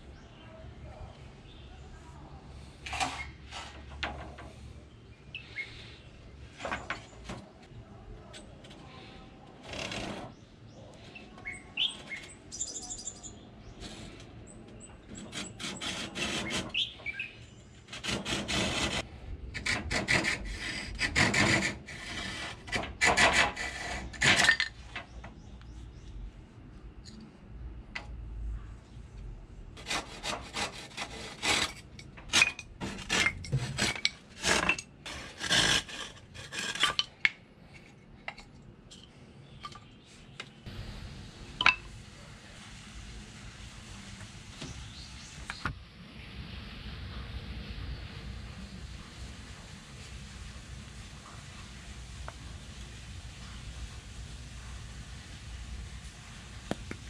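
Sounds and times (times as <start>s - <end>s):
birds chirping: 4.5s - 7.3s, 10.2s - 15.4s, 16.4s - 17.8s, 44.6s - 45.8s
hand saw cutting wood: 15.2s - 16.9s, 17.9s - 24.5s, 29.8s - 37.0s.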